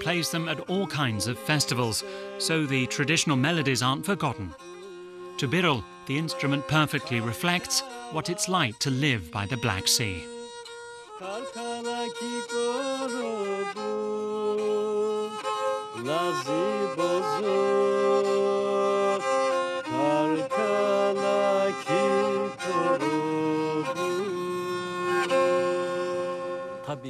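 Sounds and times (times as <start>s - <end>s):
bowed fiddle folk melody: 0.0s - 27.0s.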